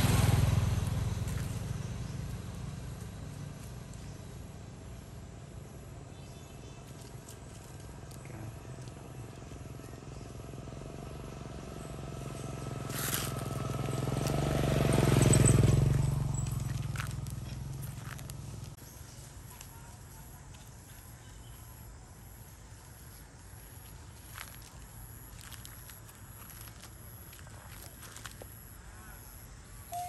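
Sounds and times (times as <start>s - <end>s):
vehicle engine passing: 0.0s - 5.6s, 8.5s - 18.8s.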